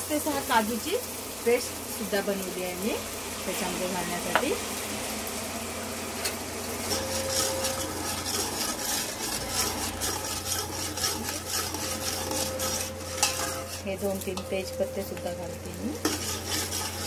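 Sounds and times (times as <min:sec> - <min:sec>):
paste sizzling in oil: 0:00.0 - 0:17.0
spoon scraping pot: 0:06.8 - 0:14.9, 0:15.9 - 0:17.0.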